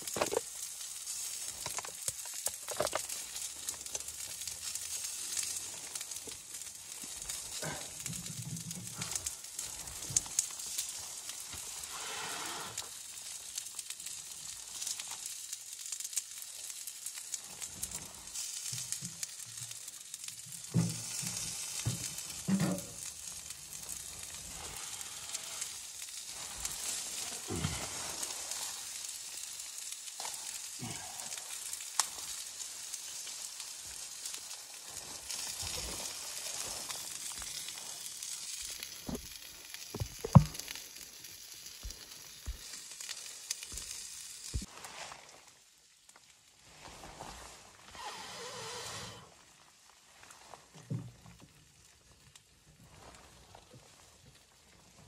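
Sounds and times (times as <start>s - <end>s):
wood fire hissing and crackling: 0.0s - 55.0s
sharp pop of fire: 40.0s - 40.6s.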